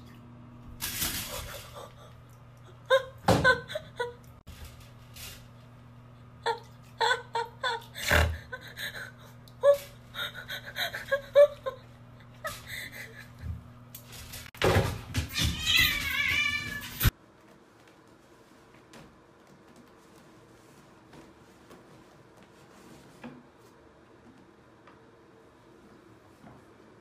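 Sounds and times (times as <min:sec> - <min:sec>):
cat meowing: 0:15.3 - 0:17.0.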